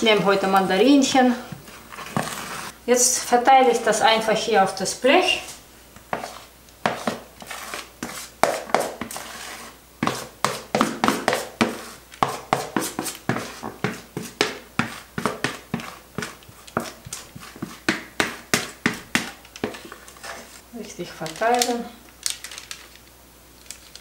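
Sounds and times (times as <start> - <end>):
spatula scraping plastic bowl: 0.0 - 2.8, 5.4 - 20.6.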